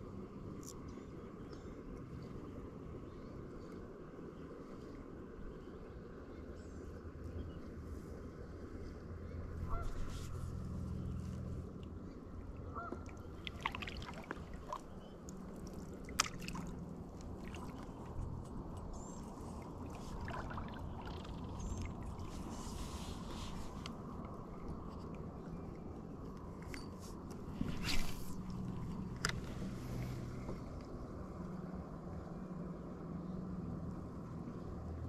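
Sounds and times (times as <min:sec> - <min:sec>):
birds calling: 0:09.6 - 0:11.5, 0:12.6 - 0:15.5.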